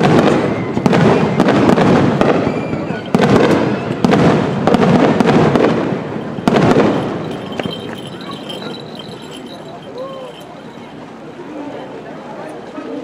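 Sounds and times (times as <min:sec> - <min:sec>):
firework shells bursting: 0:04.5 - 0:11.0.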